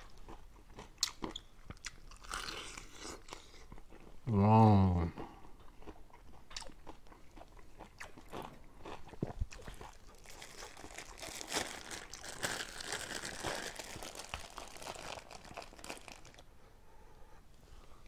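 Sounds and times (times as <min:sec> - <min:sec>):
chewing and crunching: 0:00.0 - 0:04.3, 0:05.1 - 0:16.5
plastic bag crinkling: 0:09.5 - 0:16.4.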